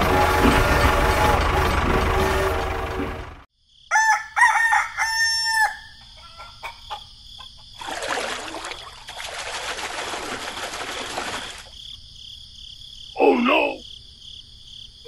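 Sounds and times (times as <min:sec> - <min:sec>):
rooster crowing: 0:03.9 - 0:07.1
water splashing: 0:07.8 - 0:11.8.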